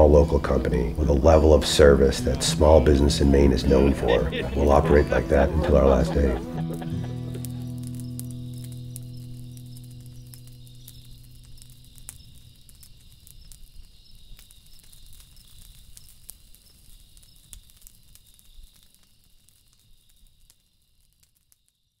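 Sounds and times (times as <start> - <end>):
music: 0.0 - 12.8
crackling clicks: 6.6 - 21.7.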